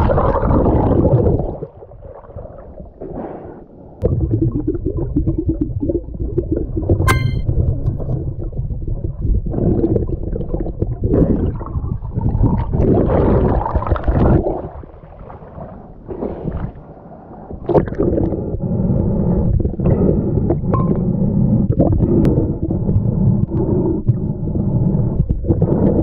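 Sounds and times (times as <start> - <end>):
muffled underwater rushing: 0.0 - 26.0.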